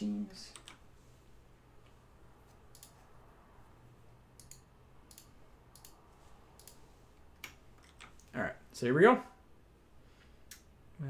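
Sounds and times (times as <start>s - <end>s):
mouse and keyboard clicks: 2.6s - 3.0s, 4.4s - 6.0s, 6.6s - 6.8s.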